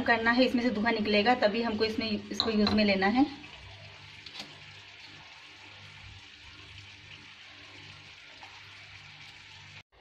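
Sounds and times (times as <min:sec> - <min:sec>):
syrup bubbling in a pan: 0:02.2 - 0:09.8.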